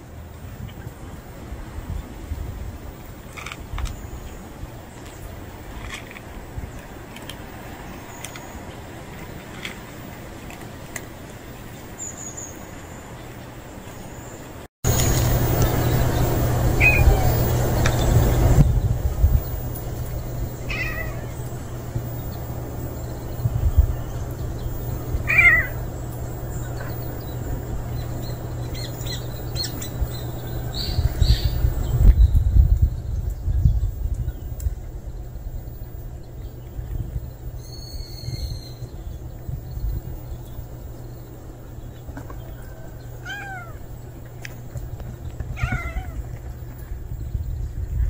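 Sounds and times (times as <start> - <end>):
low rumble: 14.9 - 48.0
cat meowing: 20.7 - 21.3, 25.2 - 25.8, 43.2 - 43.8, 45.6 - 46.2.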